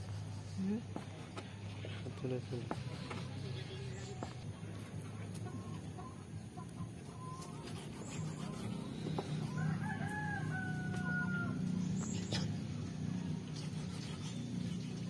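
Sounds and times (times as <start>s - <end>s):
rooster crowing: 9.4s - 11.8s.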